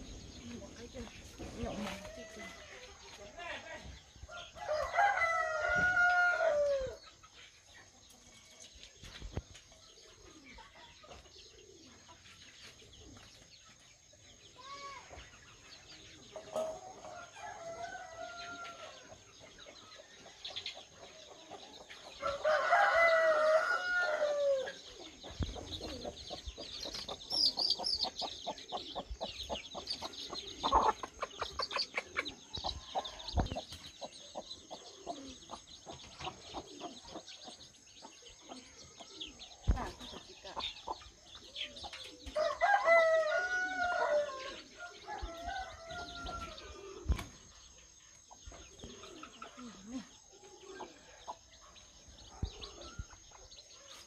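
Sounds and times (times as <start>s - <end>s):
rooster crowing: 4.6s - 7.0s, 22.2s - 24.8s, 42.4s - 46.9s
chicks chirping: 24.7s - 54.0s.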